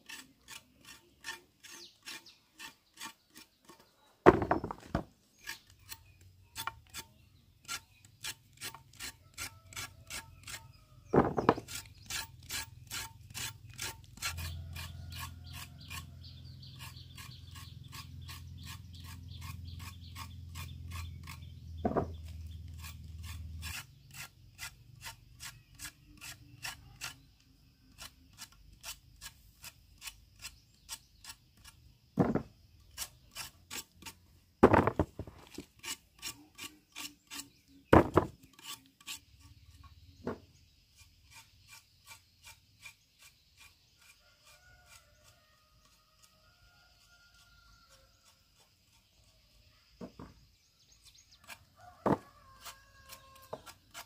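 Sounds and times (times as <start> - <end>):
hand tool scraping: 0.0 - 54.0
knocks: 4.3 - 5.1, 11.1 - 11.7, 21.8 - 22.2, 32.2 - 32.5, 34.6 - 35.3, 38.0 - 38.4.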